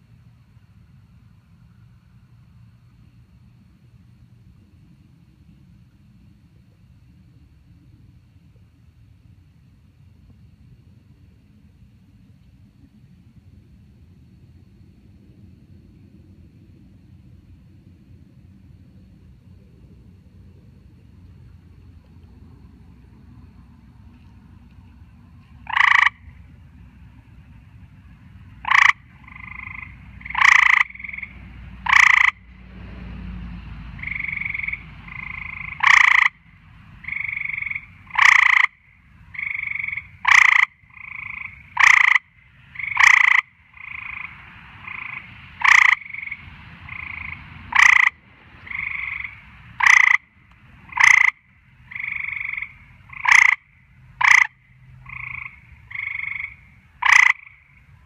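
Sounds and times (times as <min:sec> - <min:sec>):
tree frogs calling: 0:25.5 - 0:26.5, 0:27.9 - 0:32.5, 0:33.9 - 0:58.0.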